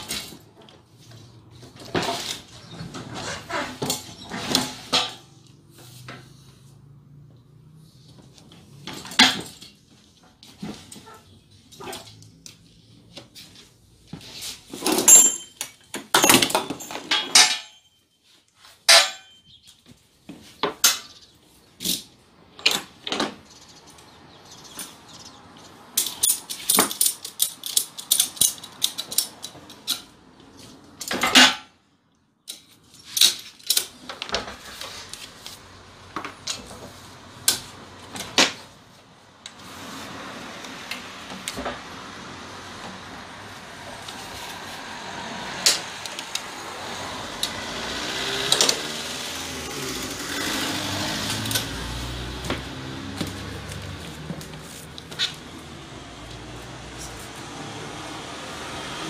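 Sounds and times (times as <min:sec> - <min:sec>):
metal clanks and rattles: 0:00.0 - 0:06.2, 0:08.5 - 0:12.3, 0:14.6 - 0:18.0, 0:18.8 - 0:19.6, 0:25.9 - 0:31.8.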